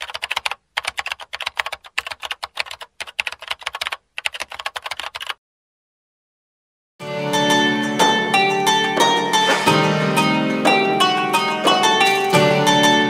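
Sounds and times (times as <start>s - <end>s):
keyboard typing clicks: 0.0s - 5.4s.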